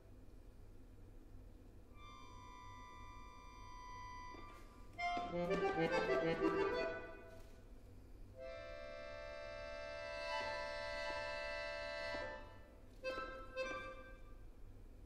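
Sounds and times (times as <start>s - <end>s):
solo accordion playing: 2.0s - 7.4s, 8.4s - 14.2s.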